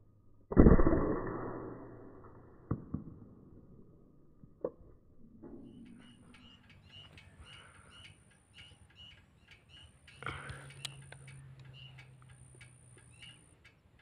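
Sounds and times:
airgun shot: 0:00.5 - 0:03.3
sharp clicks: 0:05.4 - 0:14.0.

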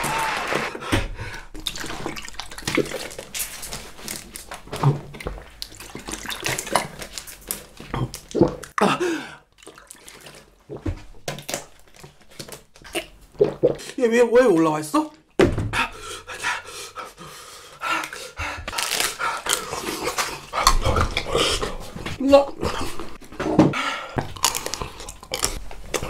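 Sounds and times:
water glugging from bottle: 0:01.2 - 0:03.6, 0:04.6 - 0:13.9, 0:19.8 - 0:24.3.

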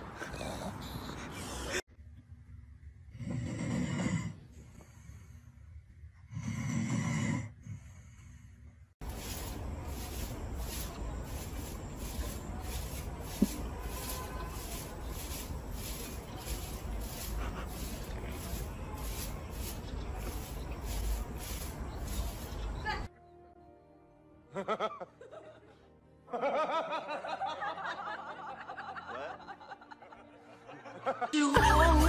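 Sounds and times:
dog snoring: 0:03.1 - 0:04.4, 0:06.3 - 0:07.9
broom sweeping dirt path: 0:09.0 - 0:23.1.

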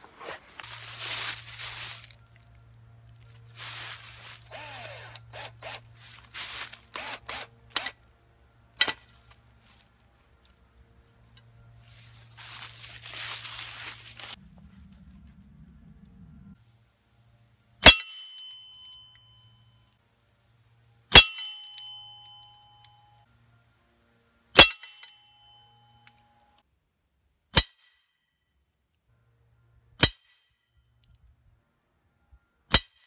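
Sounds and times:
pellets clanging on metal bell: 0:21.2 - 0:22.8.

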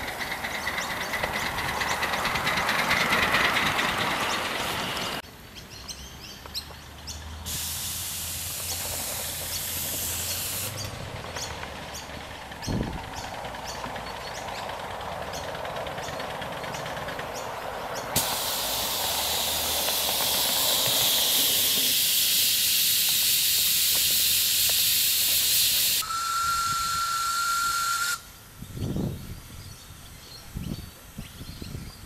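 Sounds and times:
steam blowing off hiss: 0:07.4 - 0:11.0, 0:18.1 - 0:28.4
steam whistle: 0:18.2 - 0:28.3.

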